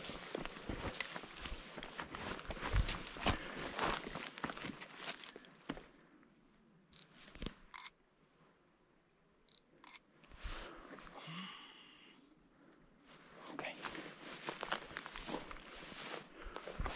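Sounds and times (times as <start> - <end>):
footsteps on rock and grit: 0.0 - 5.8.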